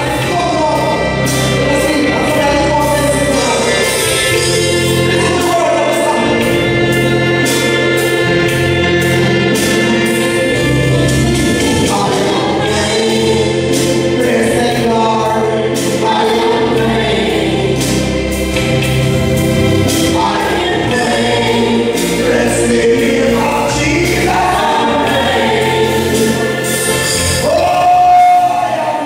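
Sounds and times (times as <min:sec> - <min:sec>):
bass line and drums: 0:00.0 - 0:29.0
man singing into microphone: 0:11.7 - 0:17.7, 0:20.1 - 0:29.0
backing singers: 0:19.8 - 0:29.0.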